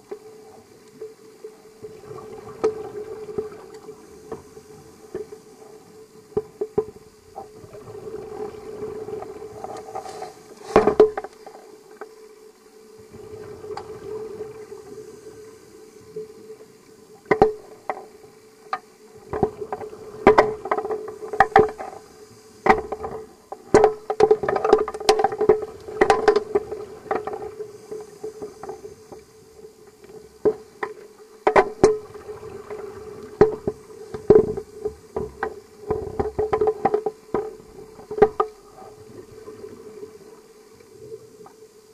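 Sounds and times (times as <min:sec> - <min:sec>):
steady underwater hum: 0:00.0 - 0:41.9.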